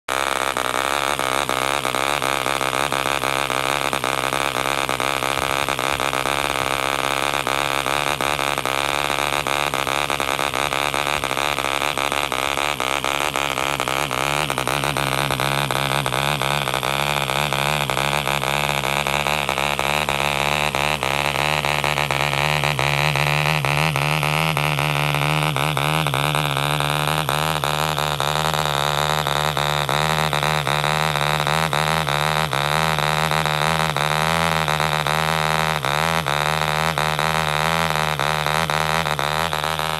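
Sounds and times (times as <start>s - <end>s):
model engine running: 0.1s - 39.9s.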